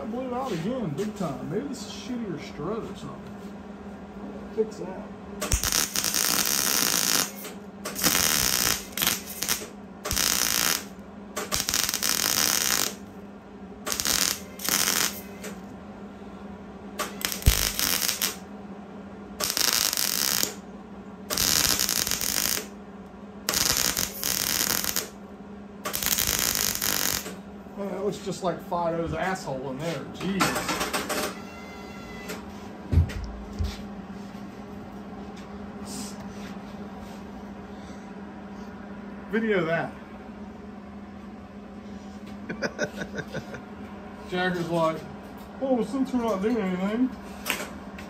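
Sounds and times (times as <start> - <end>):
steady low hum: 0.0 - 48.0
welder crackling and sputtering: 5.4 - 13.1, 13.8 - 15.6, 17.0 - 18.4, 19.4 - 20.6, 21.3 - 22.8, 23.5 - 25.2, 25.8 - 27.4.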